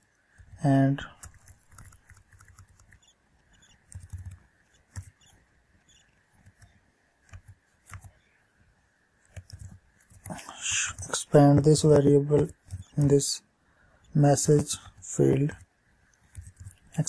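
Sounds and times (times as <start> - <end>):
typing on computer keyboard: 1.2 - 8.2, 9.3 - 11.1.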